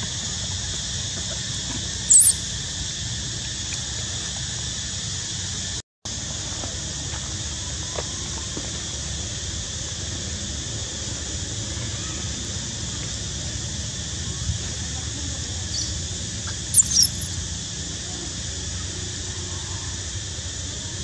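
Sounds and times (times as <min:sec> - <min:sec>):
steady outdoor hiss: 0:00.0 - 0:21.0
baby monkey squeaking: 0:02.1 - 0:02.4, 0:16.5 - 0:17.4.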